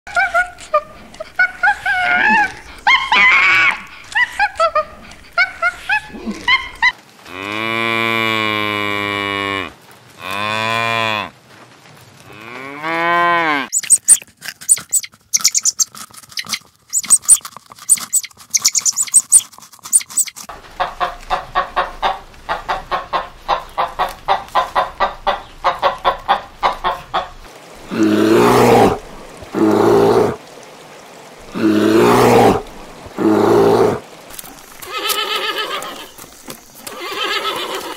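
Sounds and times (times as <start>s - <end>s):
long low animal calls: 0.1s - 6.9s, 27.8s - 30.4s, 31.4s - 34.2s
quick even series of calls: 13.7s - 20.5s
loud animal roar: 27.8s - 30.4s, 31.5s - 34.0s.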